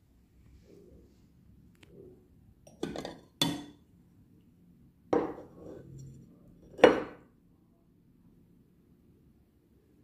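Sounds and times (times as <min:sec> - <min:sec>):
crockery clinking: 0:02.7 - 0:03.8, 0:05.2 - 0:07.2.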